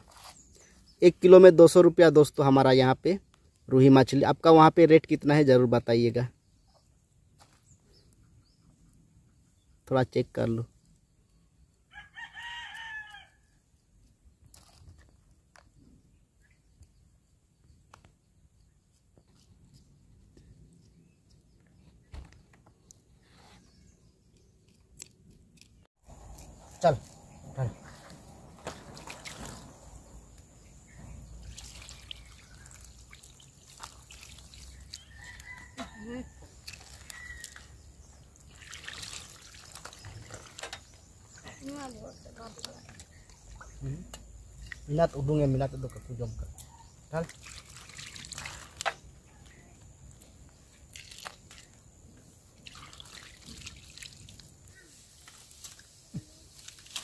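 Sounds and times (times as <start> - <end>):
drips and small splashes: 27.8 - 29.8, 31.4 - 43.9, 47.1 - 49.1, 50.7 - 51.8, 52.5 - 57.0
water trickling over hands: 27.8 - 30.1, 31.3 - 35.7, 36.4 - 43.8, 47.2 - 48.9, 50.7 - 51.8, 52.5 - 57.0
water splashing over fish: 31.4 - 35.1, 38.4 - 40.6, 47.3 - 48.8, 52.6 - 54.5.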